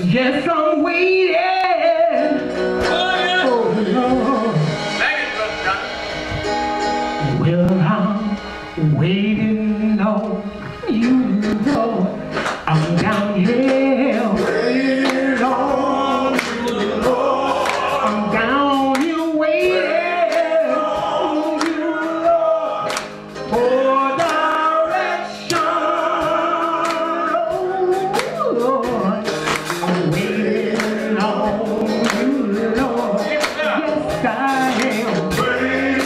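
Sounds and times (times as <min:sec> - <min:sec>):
lead vocalist singing: 0:00.0 - 0:05.4, 0:07.2 - 0:36.0
male gospel chorus singing: 0:02.5 - 0:06.4, 0:13.4 - 0:36.0
hand claps: 0:12.4 - 0:13.8, 0:15.0 - 0:15.5, 0:16.3 - 0:16.9, 0:17.6 - 0:18.2, 0:18.9 - 0:19.2, 0:20.3 - 0:20.6, 0:21.5 - 0:21.8, 0:22.9 - 0:23.5, 0:24.2 - 0:24.5, 0:25.5 - 0:25.7, 0:26.8 - 0:27.1, 0:28.2 - 0:28.4, 0:29.3 - 0:30.0, 0:30.8 - 0:31.0, 0:32.0 - 0:32.4, 0:33.4 - 0:33.8, 0:34.7 - 0:35.2.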